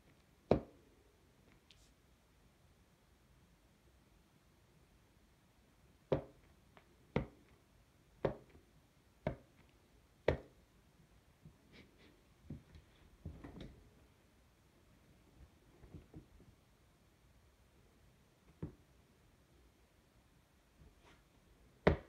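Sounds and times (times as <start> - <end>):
rubber sole tapping on floor: 6.1 - 6.5, 7.2 - 7.4, 8.2 - 8.6.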